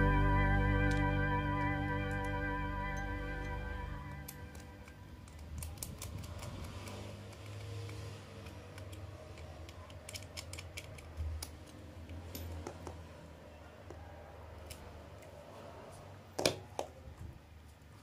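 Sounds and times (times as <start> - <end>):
screwdriver turning screw: 4.3 - 12.7.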